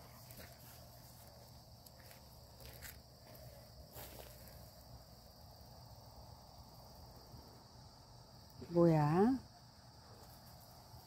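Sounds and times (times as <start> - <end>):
footsteps on dirt path: 0.0 - 4.9
field insects chirring: 0.0 - 11.0.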